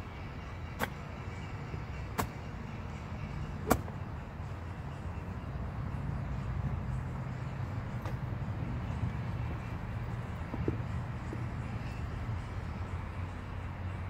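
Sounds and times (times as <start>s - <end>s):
golf ball being struck: 0.8s - 1.0s, 3.6s - 4.0s.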